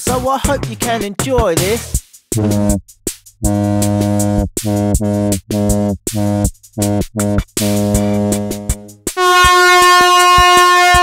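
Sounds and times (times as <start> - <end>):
low buzzing synth notes: 2.4 - 2.8, 3.4 - 11.0
drum-machine clicks: 2.4 - 11.0.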